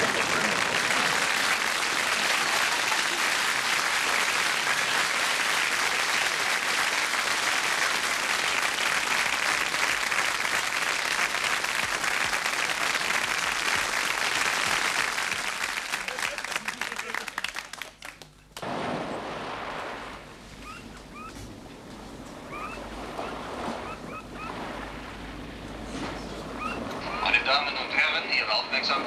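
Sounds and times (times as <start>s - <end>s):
studio audience applauding: 0.0s - 18.7s.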